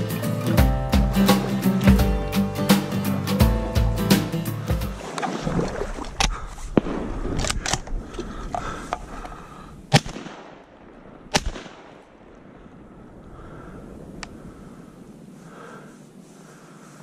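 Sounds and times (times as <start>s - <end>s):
water sloshing: 4.6s - 9.5s
sharp cracks and knocks: 6.1s - 10.7s, 11.3s - 12.1s.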